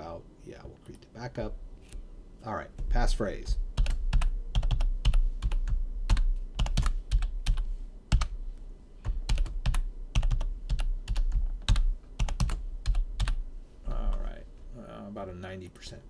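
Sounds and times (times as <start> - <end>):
typing on computer keyboard: 3.8 - 8.4, 9.0 - 13.4.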